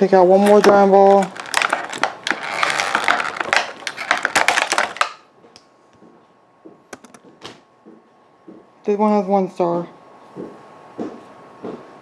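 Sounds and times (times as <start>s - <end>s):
plastic packaging crinkling: 0.2s - 5.2s.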